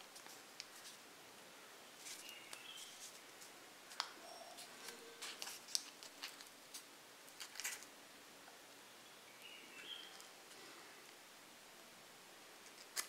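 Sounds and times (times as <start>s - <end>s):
paper crinkling: 2.0s - 7.9s, 12.6s - 13.0s.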